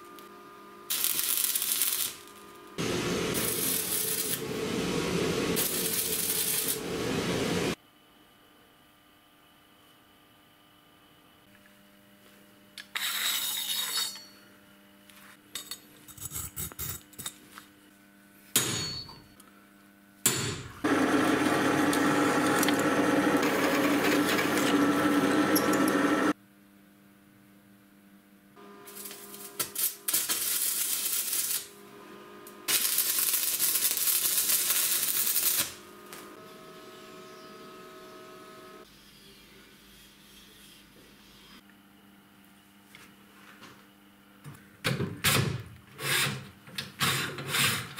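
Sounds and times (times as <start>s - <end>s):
low hum: 2.6s - 7.8s
drill press grinding through steel: 20.9s - 26.3s.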